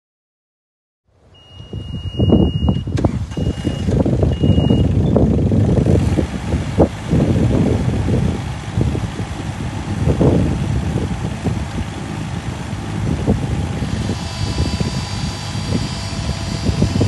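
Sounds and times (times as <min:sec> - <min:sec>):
high travel alarm beeps: 0:01.4 - 0:05.2, 0:14.0 - 0:17.0
diesel engine running: 0:01.4 - 0:17.0.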